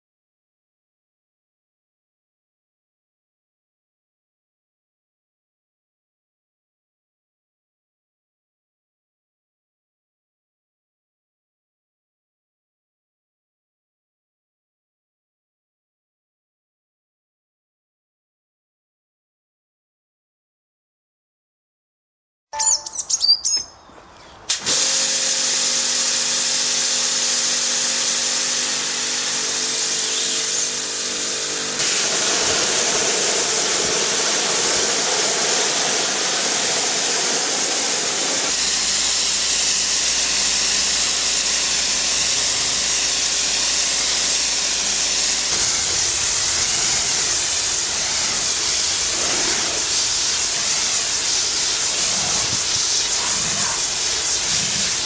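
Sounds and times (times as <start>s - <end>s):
pressure washer water jet hissing: 24.5s - 55.0s
pump motor humming: 24.5s - 55.0s.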